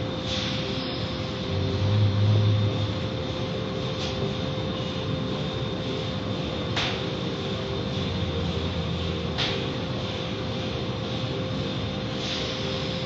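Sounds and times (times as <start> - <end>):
car wash machinery running: 0.0 - 13.0.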